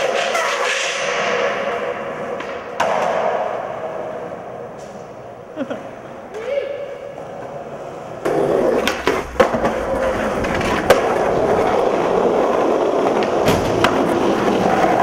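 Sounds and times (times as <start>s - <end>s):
skateboard clacks: 0.0s - 4.1s, 8.2s - 15.0s
skateboard wheels rolling on concrete: 0.0s - 15.0s.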